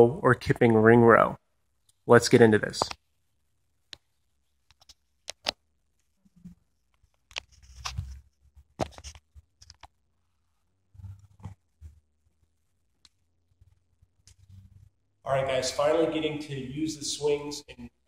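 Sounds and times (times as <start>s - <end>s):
fingers rubbing over microphone: 6.3s - 9.9s.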